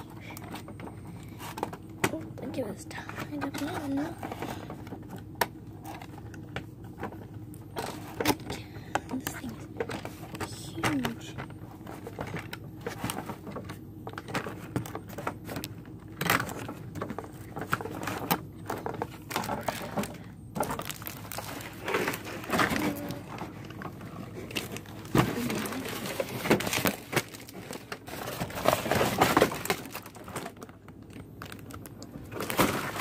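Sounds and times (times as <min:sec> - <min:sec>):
cardboard and paper rustling: 0:00.0 - 0:33.0.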